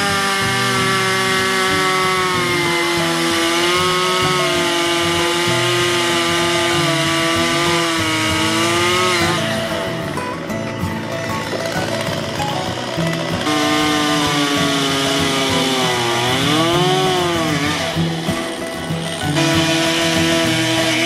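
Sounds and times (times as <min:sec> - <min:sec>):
chainsaw cutting wood: 0:00.0 - 0:21.0.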